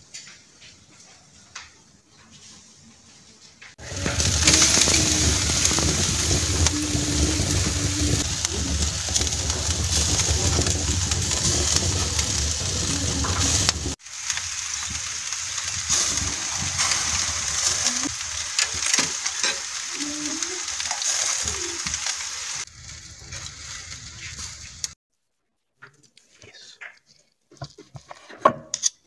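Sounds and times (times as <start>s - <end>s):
steaks sizzling on a grill: 3.8s - 25.0s.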